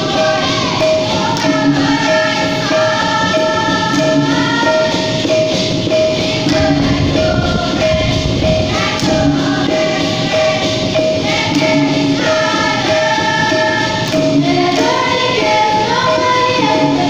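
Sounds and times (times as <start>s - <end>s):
group singing: 0.0s - 17.0s
instrumental accompaniment: 0.0s - 17.0s
steady repeating beat: 0.0s - 17.0s.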